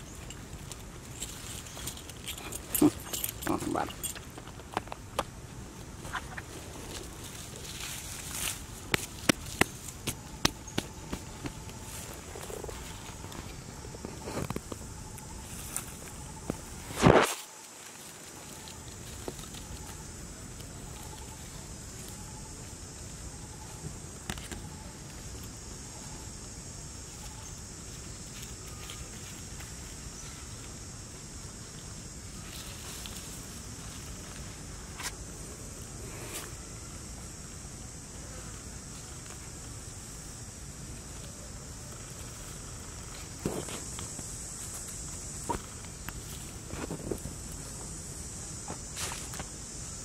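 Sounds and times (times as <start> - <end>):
high-pitched insect drone: 0.0 - 4.5, 5.8 - 50.0
rustle: 0.0 - 50.0.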